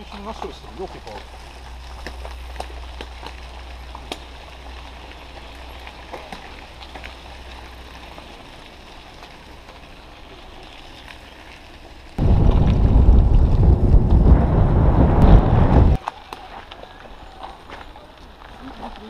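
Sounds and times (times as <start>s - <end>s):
small ticks and clicks: 0.0s - 13.5s
bicycle tyres on gravel: 0.0s - 19.0s
wind rumble on microphone: 12.2s - 16.0s.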